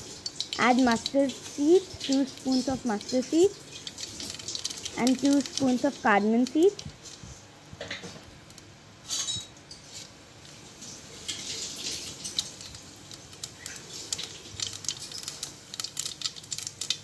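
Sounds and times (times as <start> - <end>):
seeds sizzling in oil: 0.0 - 7.2, 9.0 - 17.0
sharp pops and crackles: 0.0 - 7.3, 11.7 - 17.0.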